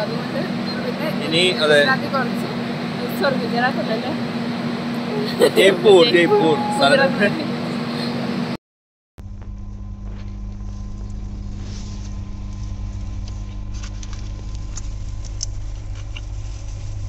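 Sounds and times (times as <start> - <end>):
vehicle rumble: 0.0 - 8.6, 9.2 - 17.0.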